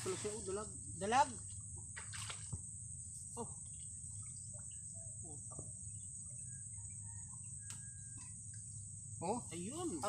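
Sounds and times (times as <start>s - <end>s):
insects trilling: 0.0s - 10.0s.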